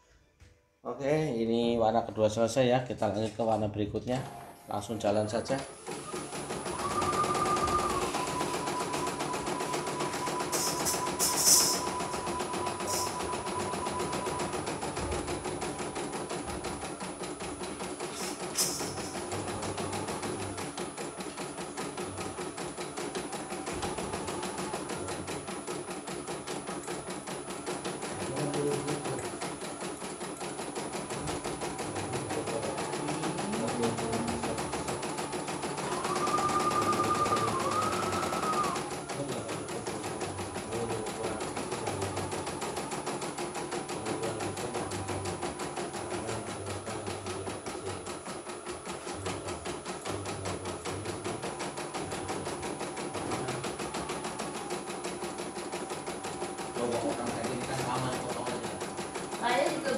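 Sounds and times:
embroidery machine stitching: 2.4 - 59.9
wavering tone: 6.7 - 13.5.

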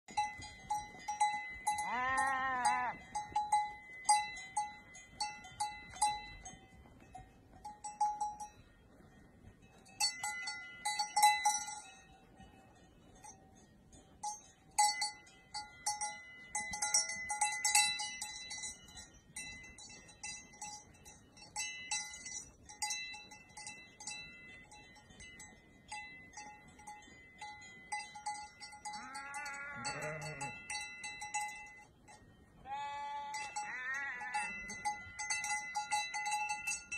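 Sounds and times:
livestock bells clanking: 0.1 - 36.9
sheep bleating: 1.8 - 3.0, 32.7 - 34.5.

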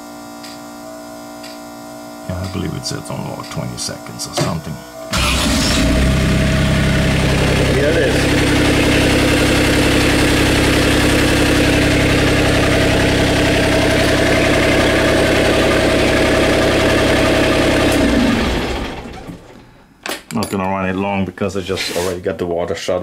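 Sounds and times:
diesel engine idling: 5.1 - 19.4
engine spinning down: 5.1 - 19.6.

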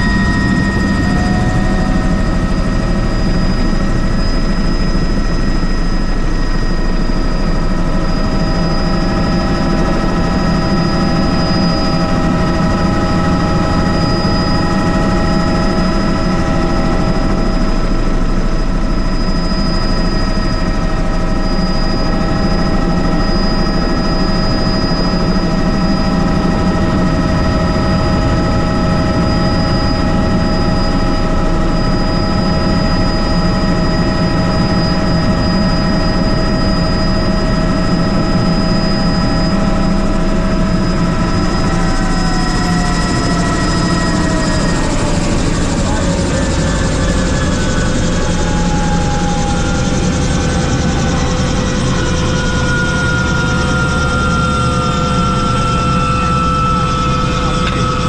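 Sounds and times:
helicopter rotor and engine rumble: 0.0 - 58.0
high whining tones: 0.0 - 58.0.

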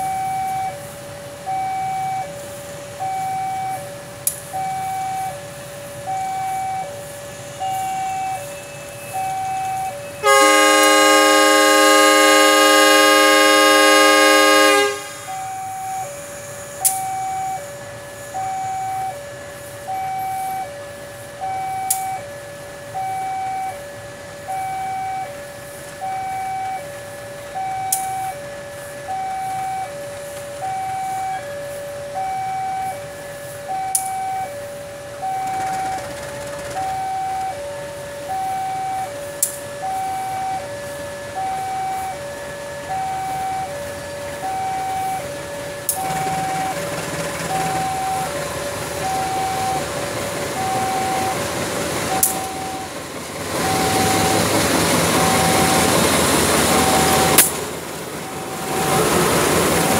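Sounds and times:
two-tone electronic alarm: 0.0 - 57.5, 58.1 - 59.9
locomotive horn blast: 9.8 - 15.8.

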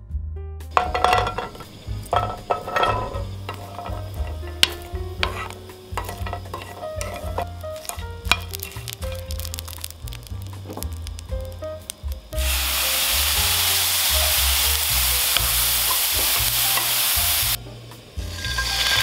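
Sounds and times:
food sizzling: 0.7 - 19.0
wooden spatula scraping a pan: 0.8 - 11.0, 18.2 - 19.0.

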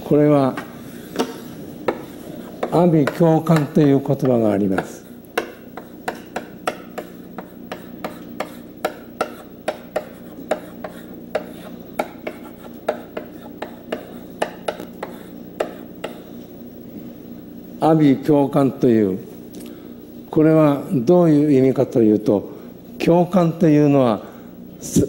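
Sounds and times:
steady low hum: 0.0 - 25.0
chalk tapping on blackboard: 1.2 - 16.3.

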